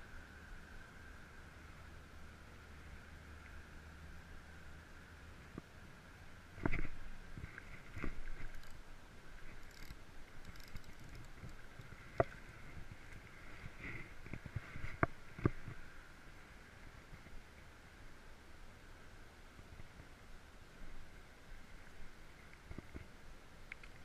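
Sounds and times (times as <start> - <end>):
fishing reel: 8.4 - 8.8, 9.5 - 11.8.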